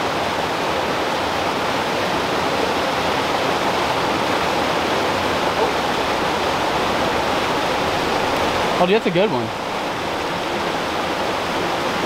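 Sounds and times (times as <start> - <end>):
creek rushing over boulders: 0.0 - 12.0.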